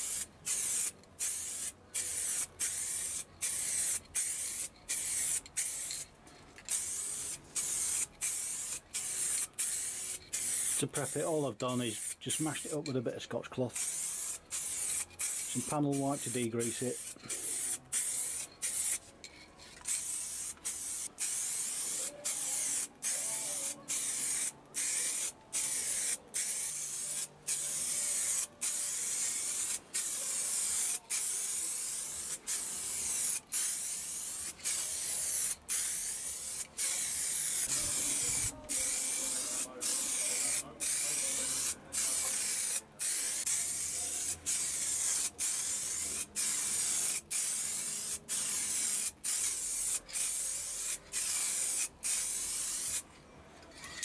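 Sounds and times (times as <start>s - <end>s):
aerosol spray paint hissing: 0.0s - 6.1s, 6.7s - 12.9s, 13.7s - 19.1s, 19.8s - 53.0s.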